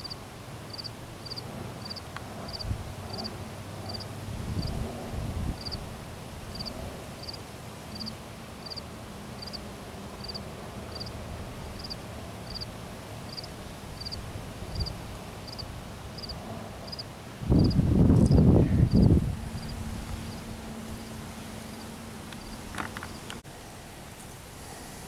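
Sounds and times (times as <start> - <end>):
cricket chirping: 0.0 - 3.3, 3.9 - 4.7, 5.6 - 5.8, 6.5 - 8.8, 9.4 - 9.6, 10.2 - 11.2, 11.8 - 12.7, 13.3 - 23.3
low background hiss: 0.0 - 25.0.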